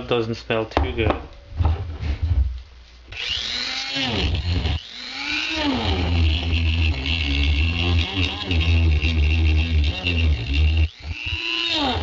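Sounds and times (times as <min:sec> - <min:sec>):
rotary tool whining: 0:03.1 - 0:12.0.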